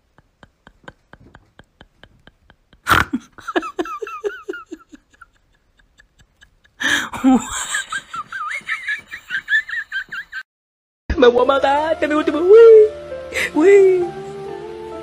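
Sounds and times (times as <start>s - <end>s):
person laughing: 0.0s - 10.4s.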